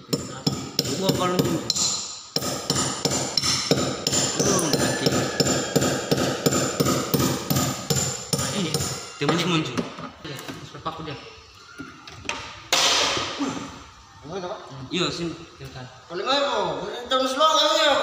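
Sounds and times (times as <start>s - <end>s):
hammer striking a nail: 0.0s - 9.4s.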